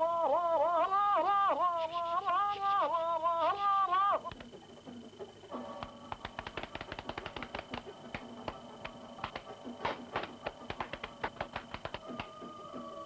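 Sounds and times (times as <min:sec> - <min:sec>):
faint background music: 0:00.0 - 0:13.0
rapid dry tapping: 0:05.8 - 0:12.4.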